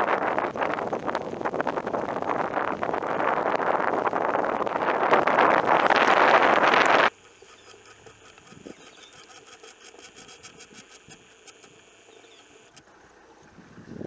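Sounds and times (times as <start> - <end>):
low hum: 0.0 - 14.0
faint ticks: 6.8 - 12.9.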